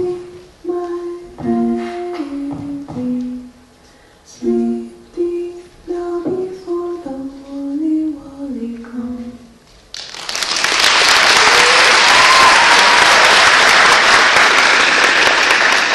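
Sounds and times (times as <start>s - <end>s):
audience applause: 9.9s - 15.9s.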